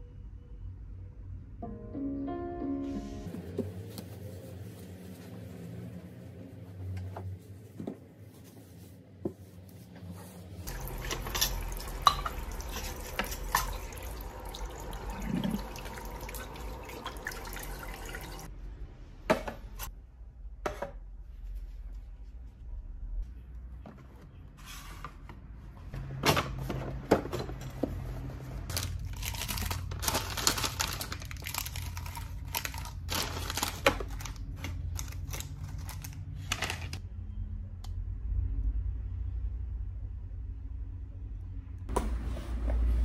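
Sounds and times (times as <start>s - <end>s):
faucet water running into basin: 10.7s - 18.5s.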